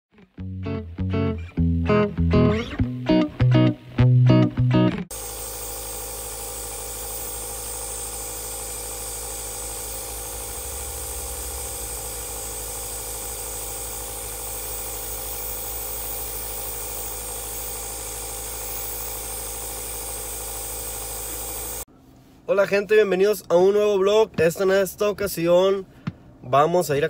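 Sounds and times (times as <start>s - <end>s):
aerosol mist hiss: 5.1s - 21.9s
nebulizer motor hum: 5.1s - 21.9s.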